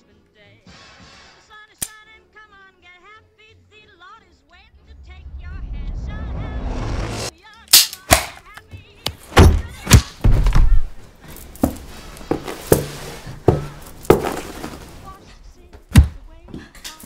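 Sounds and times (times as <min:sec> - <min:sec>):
rising swell: 0:04.6 - 0:07.3
heavy thuds and blows: 0:09.3 - 0:11.0.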